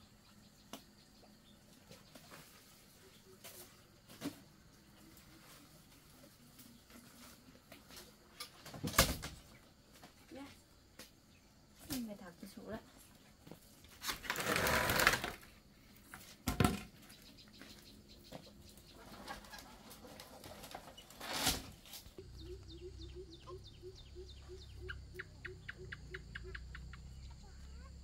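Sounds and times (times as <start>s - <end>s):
bamboo rustling and scraping: 1.7s - 22.6s.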